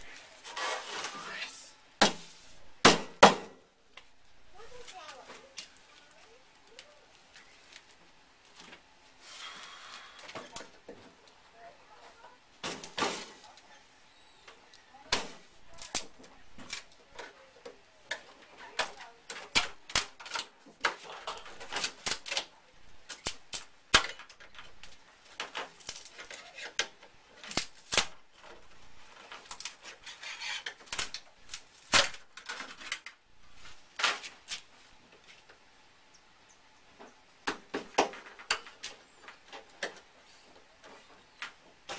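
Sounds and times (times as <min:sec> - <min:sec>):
scraping on metal: 0:00.4 - 0:01.3, 0:29.2 - 0:30.9.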